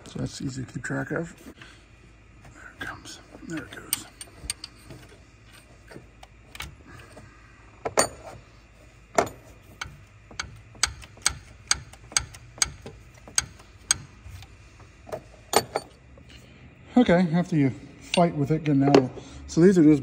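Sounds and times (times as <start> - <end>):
metal clicks and knocks: 9.1 - 14.1.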